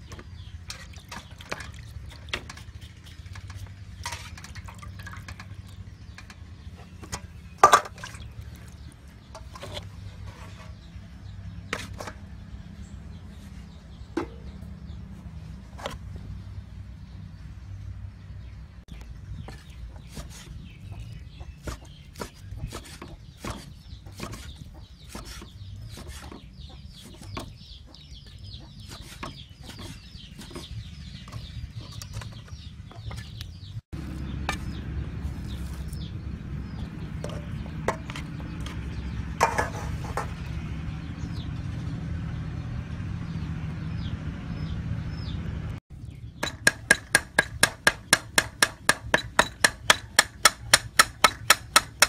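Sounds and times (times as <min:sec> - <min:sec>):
small birds peeping: 0:00.0 - 0:52.0
cleaver chopping on wooden board: 0:46.4 - 0:52.0.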